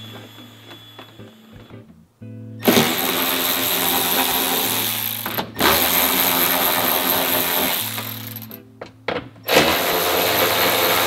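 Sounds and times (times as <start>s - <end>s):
power ratchet spinning bolt: 2.6s - 8.6s.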